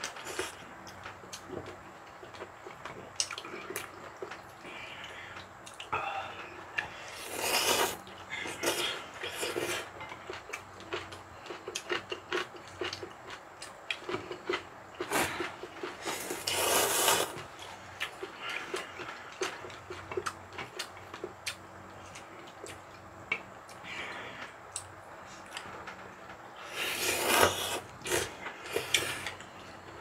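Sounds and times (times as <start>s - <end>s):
chewing: 0.3s - 26.0s
noodles slurped: 7.1s - 9.9s, 16.0s - 17.4s, 26.6s - 29.3s.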